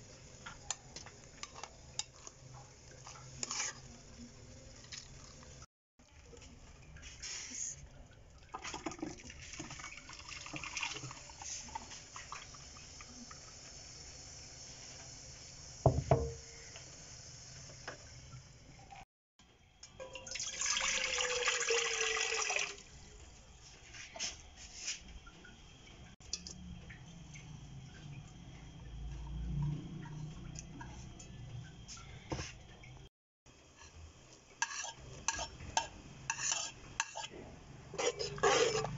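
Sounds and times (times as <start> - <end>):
pouring liquid: 1.9 - 13.3, 20.0 - 23.0.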